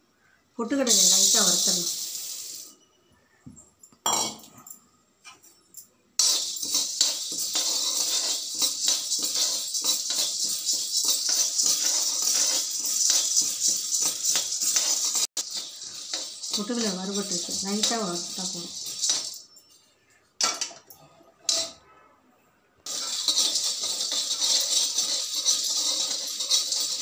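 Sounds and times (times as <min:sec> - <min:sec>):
roasting chickpeas rattling in pan: 0:00.8 - 0:02.4, 0:06.2 - 0:19.5, 0:22.9 - 0:27.0.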